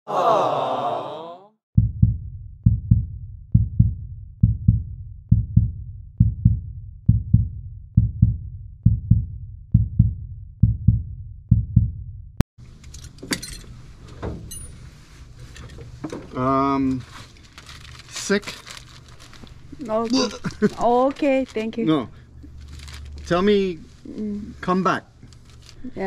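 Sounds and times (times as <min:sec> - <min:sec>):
low doubled bass thumps: 0:01.8 - 0:12.4
faint clicks and rustles: 0:22.4 - 0:24.3, 0:25.2 - 0:25.9.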